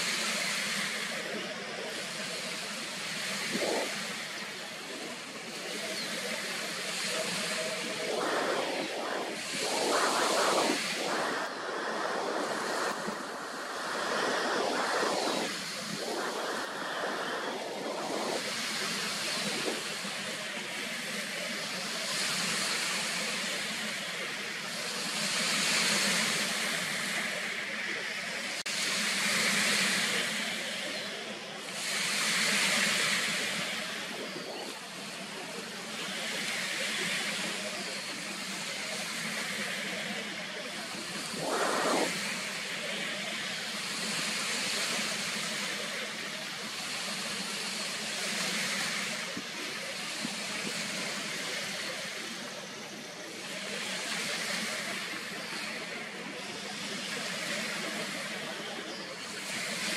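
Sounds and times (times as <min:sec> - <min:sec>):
steady rushing hiss: 0:00.0 - 0:59.9
wind buffeting microphone: 0:07.1 - 0:20.8, 0:40.9 - 0:43.3.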